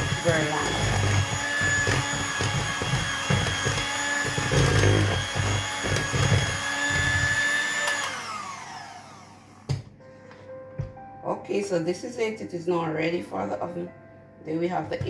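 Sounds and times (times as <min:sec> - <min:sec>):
electric hand mixer running: 0:00.0 - 0:09.8.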